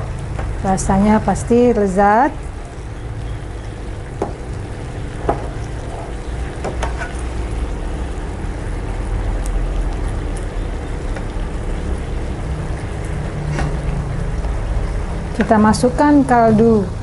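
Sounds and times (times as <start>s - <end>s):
spatula scraping and knocking pan: 6.6s - 7.2s.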